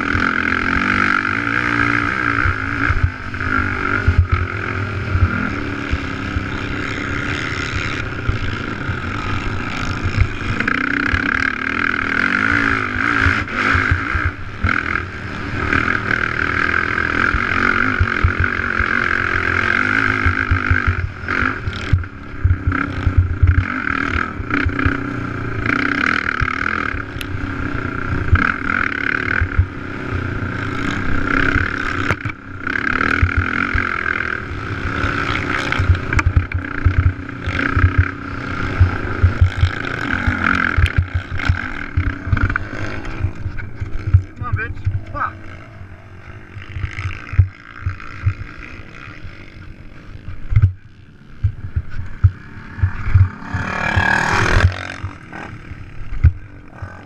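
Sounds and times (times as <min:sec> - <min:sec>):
atv engine running hard: 0:00.0 - 0:57.0
low thumps from rough track: 0:02.4 - 0:06.5, 0:17.3 - 0:23.7, 0:28.1 - 0:29.8, 0:33.1 - 0:33.9, 0:35.7 - 0:45.3, 0:46.5 - 0:49.2, 0:50.0 - 0:56.6.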